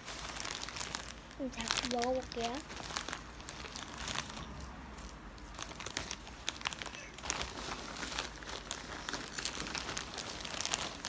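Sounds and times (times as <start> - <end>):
candy wrapper crinkling: 0.0 - 11.0.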